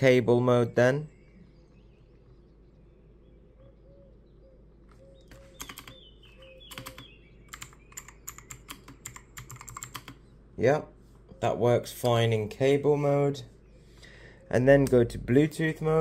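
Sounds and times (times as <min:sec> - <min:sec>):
mechanical keyboard keystroke clicks: 0:05.3 - 0:06.0, 0:06.7 - 0:10.2.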